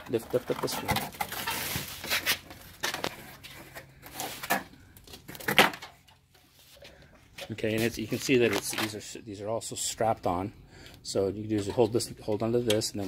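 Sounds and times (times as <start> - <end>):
cardboard scraping and rustling: 0.3 - 5.8.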